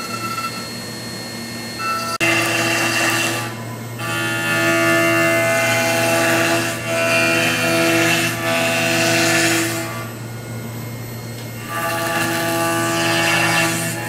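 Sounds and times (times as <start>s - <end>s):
spindle whine: 0.0s - 2.2s.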